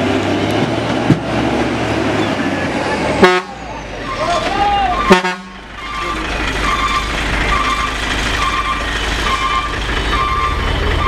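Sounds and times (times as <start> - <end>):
diesel truck engine rumbling: 0.0 - 11.0.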